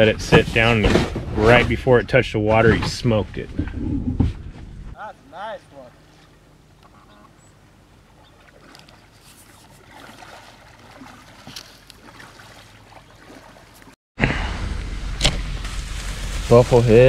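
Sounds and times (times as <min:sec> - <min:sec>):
paddle strokes splashing in water: 0:07.9 - 0:14.0.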